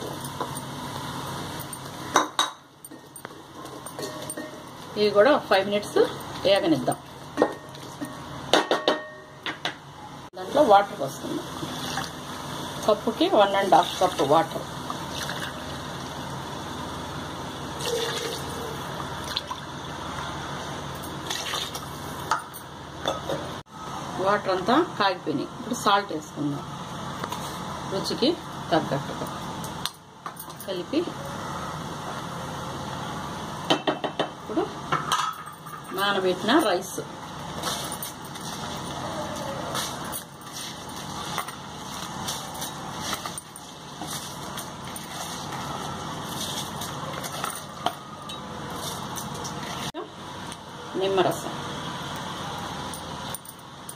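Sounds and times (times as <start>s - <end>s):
water rushing into a pot: 11.6s - 12.2s, 13.7s - 16.3s, 17.7s - 20.0s, 21.2s - 22.2s.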